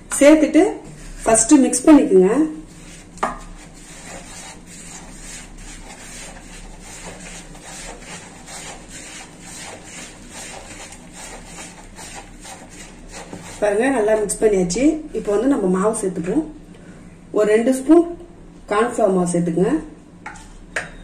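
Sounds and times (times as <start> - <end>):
hand rubbing spices in plastic bowl: 2.6 - 14.4.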